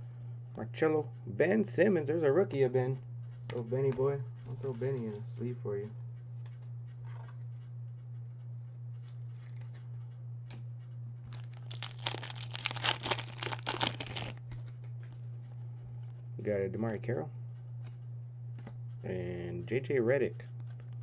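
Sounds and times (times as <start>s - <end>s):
steady low hum: 0.0s - 21.0s
plastic wrapper crinkling: 11.3s - 14.4s.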